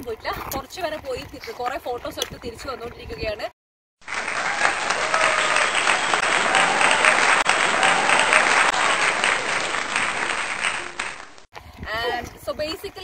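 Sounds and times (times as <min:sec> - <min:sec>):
crowd applauding: 0:04.0 - 0:11.5.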